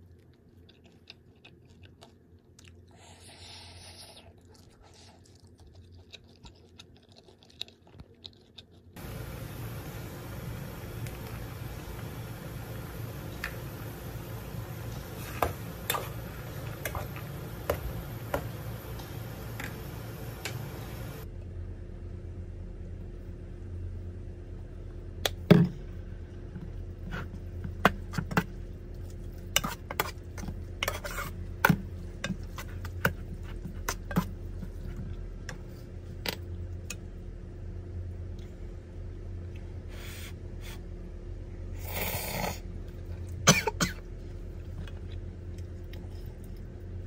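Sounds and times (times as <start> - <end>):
pot boiling on gas stove: 9.0 - 21.3.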